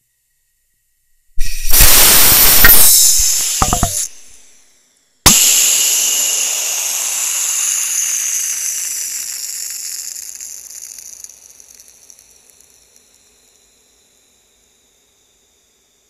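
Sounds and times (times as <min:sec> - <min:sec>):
can bursting with sharp bang: 0:01.4 - 0:04.5, 0:05.3 - 0:10.3
gas hissing: 0:01.4 - 0:04.6, 0:05.3 - 0:11.5.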